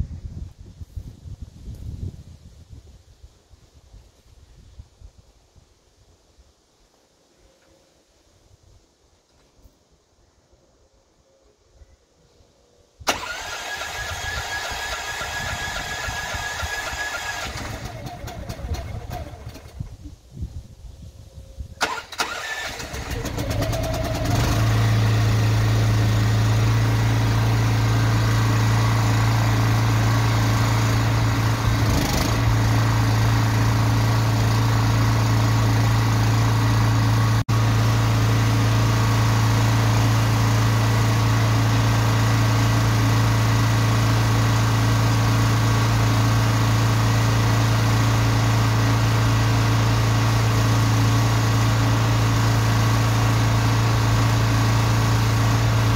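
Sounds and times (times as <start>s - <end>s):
engine running with low hum: 13.1s - 20.5s, 21.8s - 55.9s.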